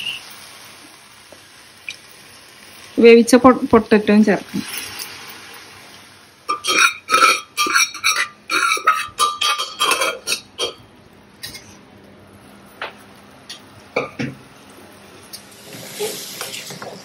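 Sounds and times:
spoon scraping metal pot: 0:06.5 - 0:10.8.

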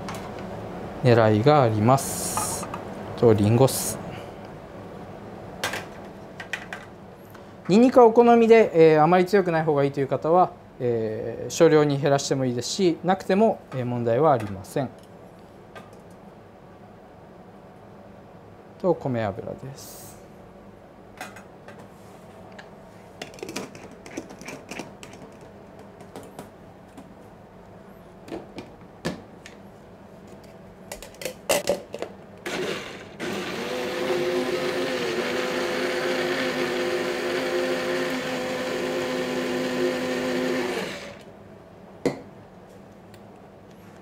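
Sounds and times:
blender motor whine: 0:32.4 - 0:41.3.

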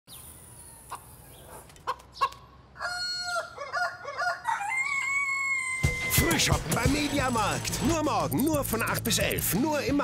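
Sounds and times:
rooster clucking and crowing: 0:01.8 - 0:06.1.

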